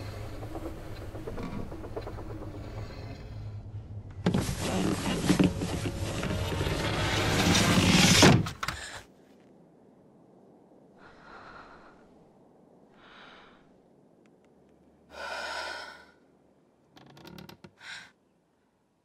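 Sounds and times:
woman breathing: 0:10.9 - 0:14.0, 0:15.1 - 0:16.4, 0:17.8 - 0:18.6.

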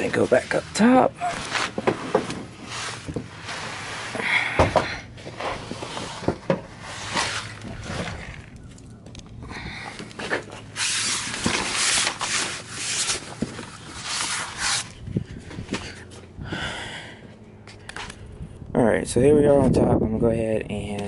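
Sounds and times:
rustling bursts: 0:00.0 - 0:04.2
camera handling rubbing and scraping: 0:05.2 - 0:09.4, 0:10.0 - 0:16.2.

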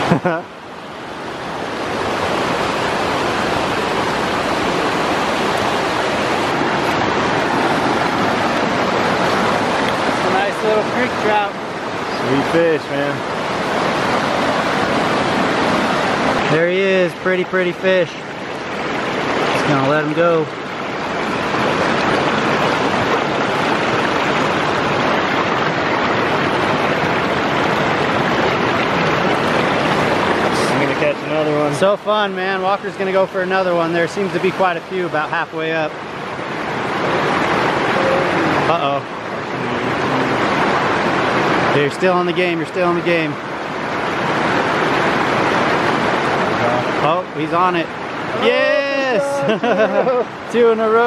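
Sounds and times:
creek water rushing: 0:00.0 - 0:51.0.

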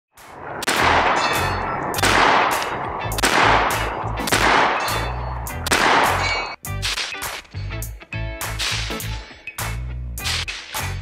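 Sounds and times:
gunshots with echo: 0:00.2 - 0:07.5.

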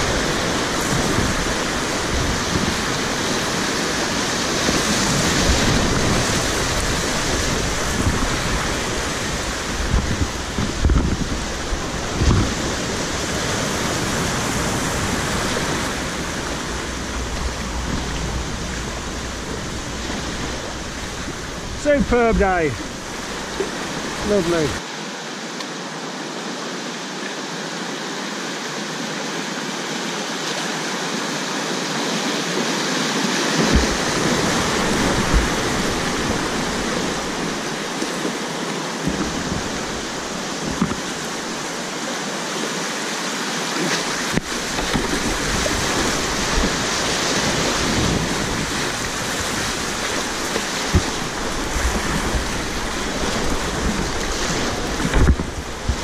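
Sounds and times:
knocks and splashes: 0:00.0 - 0:24.8, 0:32.6 - 0:41.8, 0:43.7 - 0:56.0
river rushing over rapids: 0:00.0 - 0:56.0
low rumbling: 0:05.6 - 0:24.8.

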